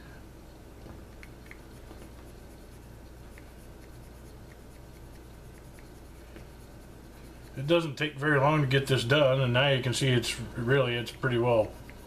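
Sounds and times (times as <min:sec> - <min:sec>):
soft ticks: 0:01.1 - 0:01.7, 0:03.3 - 0:06.0
scratchy rubbing in pipe: 0:01.5 - 0:09.1.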